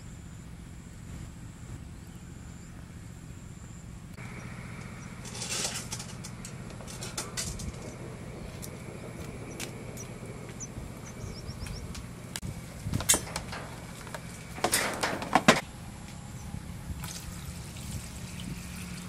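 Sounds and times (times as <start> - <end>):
low steady rumble: 0.0 - 19.0
bird chirps: 7.9 - 12.3.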